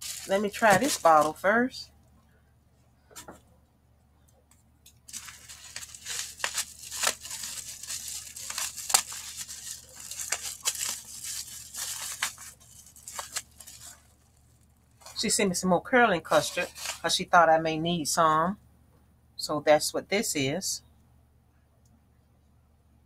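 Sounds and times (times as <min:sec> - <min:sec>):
bubble wrap crinkling: 0:00.0 - 0:01.6, 0:05.0 - 0:15.3, 0:16.2 - 0:17.2.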